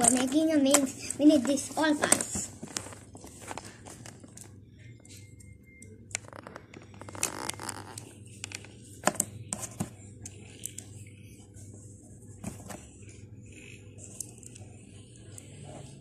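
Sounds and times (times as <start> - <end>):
plastic rustling: 1.3 - 4.5.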